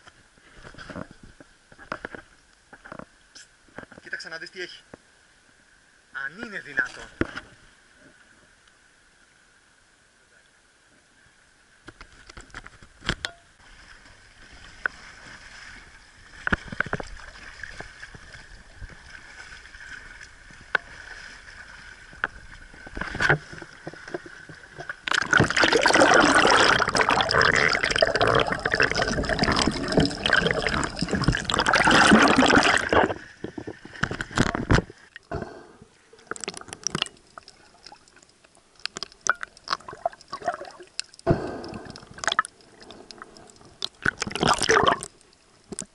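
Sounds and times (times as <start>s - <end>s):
water sloshing along hull: 12.6s - 45.9s
paddle splashes: 13.6s - 35.2s
close rush of splashing water: 25.0s - 33.4s.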